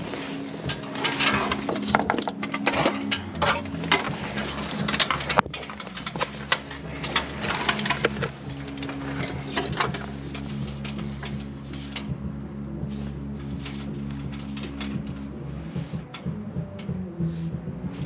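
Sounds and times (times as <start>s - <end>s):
background music: 0.0s - 18.0s
tools and hardware clicking: 0.6s - 12.1s, 13.9s - 15.2s.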